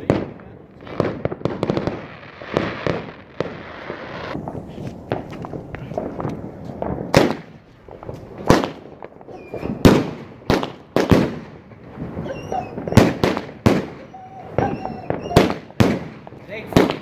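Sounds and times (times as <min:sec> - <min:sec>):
fireworks bangs: 0:00.0 - 0:17.0
fireworks whistles: 0:07.2 - 0:17.0.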